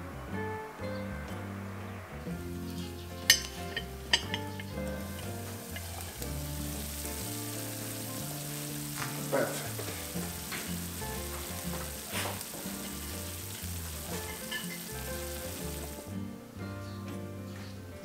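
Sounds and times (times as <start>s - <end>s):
soft background music: 0.0s - 18.0s
steady sizzling hiss: 0.0s - 18.0s
metal tongs clinking: 3.2s - 6.2s, 14.2s - 15.1s.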